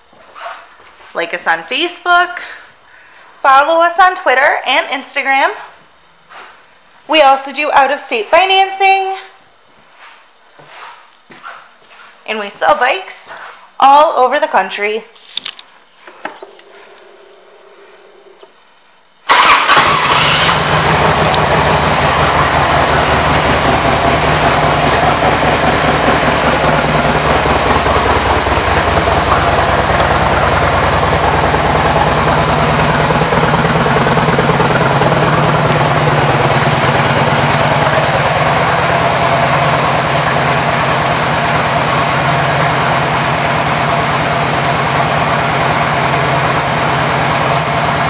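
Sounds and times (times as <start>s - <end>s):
motorcycle engine idling: 19.3s - 48.0s.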